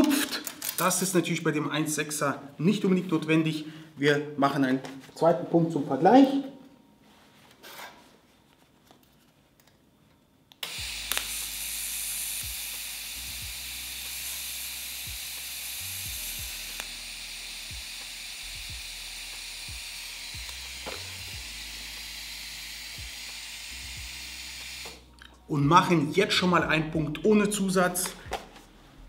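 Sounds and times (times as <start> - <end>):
welding arc click: 10.5 - 11.6, 14.0 - 17.0, 20.3 - 21.1
welding arc hissing: 10.6 - 25.1.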